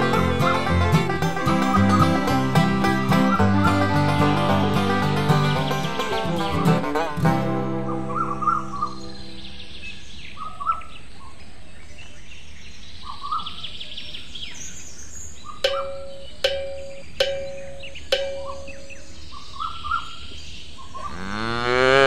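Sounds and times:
birds chirping: 0.0 - 22.0
sharp ringing clanks: 15.6 - 18.9
cow mooing: 21.1 - 22.0.

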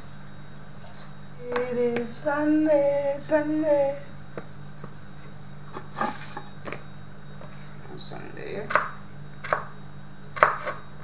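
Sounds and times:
steady low hum: 0.0 - 11.0
woman singing: 1.4 - 4.2.

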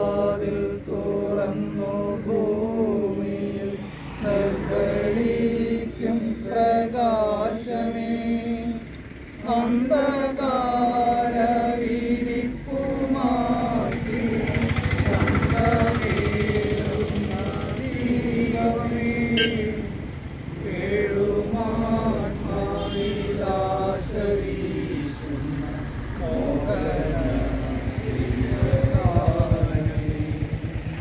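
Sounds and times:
clergy chanting: 0.0 - 31.0
loud rapid rattling: 14.1 - 17.6.

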